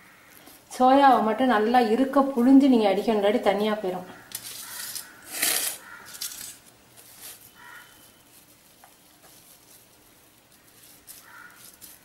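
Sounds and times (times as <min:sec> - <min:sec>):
scraping rustle: 0:04.3 - 0:12.0.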